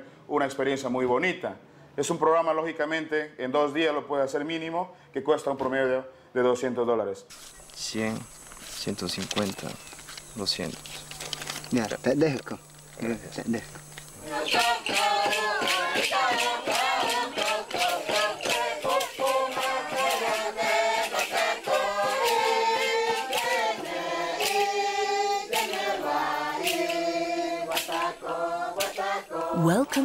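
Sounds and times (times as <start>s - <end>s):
sharp percussive clicks: 13.8s - 24.8s, 25.4s - 29.1s
group singing a chant: 14.1s - 30.0s.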